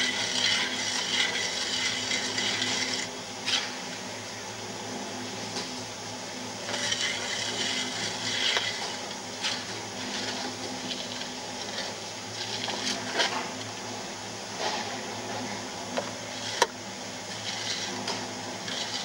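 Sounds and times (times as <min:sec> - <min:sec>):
trowel scraping mortar: 0:00.0 - 0:03.8, 0:06.6 - 0:13.5, 0:17.3 - 0:19.0.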